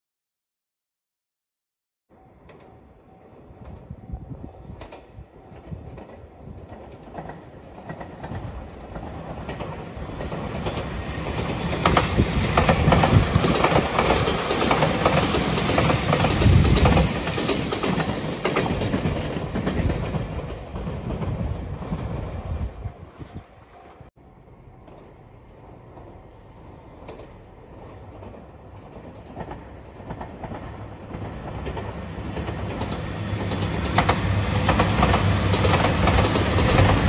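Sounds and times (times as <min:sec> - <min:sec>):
train wheels clattering: 0:04.8 - 0:22.2, 0:24.8 - 0:37.0.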